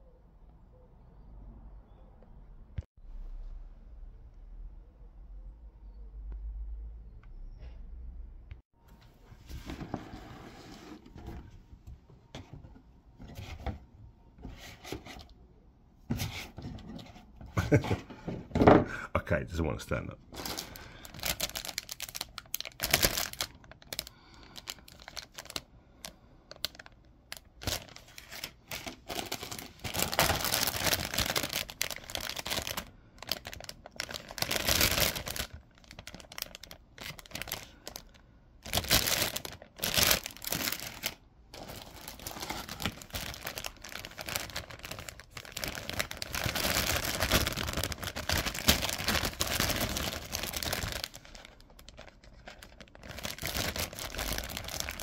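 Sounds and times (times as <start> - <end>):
plastic bags crinkling: 20.3 - 55.0.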